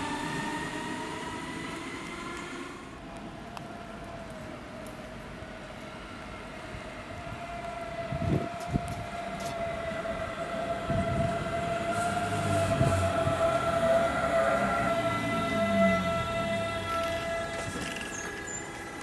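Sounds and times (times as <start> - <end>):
electric train whine: 0.0 - 19.0.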